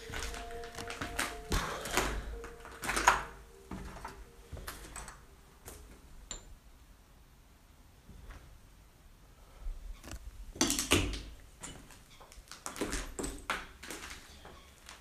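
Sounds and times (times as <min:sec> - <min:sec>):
footsteps on debris-strewn floor: 0:00.0 - 0:06.0, 0:11.6 - 0:15.0
background music tone: 0:00.0 - 0:06.7.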